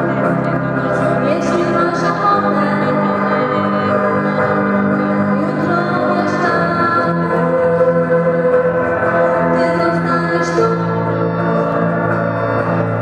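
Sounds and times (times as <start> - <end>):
electric guitars ringing chords: 0.0 - 13.0
girl singing into a microphone: 1.2 - 8.4, 9.5 - 11.4.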